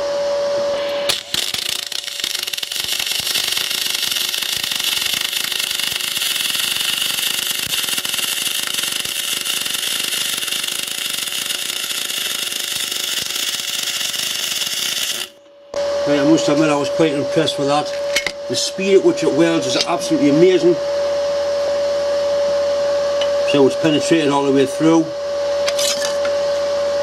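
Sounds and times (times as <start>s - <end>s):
welder hum: 0.0s - 27.0s
welding arc crackling hiss: 0.8s - 15.4s.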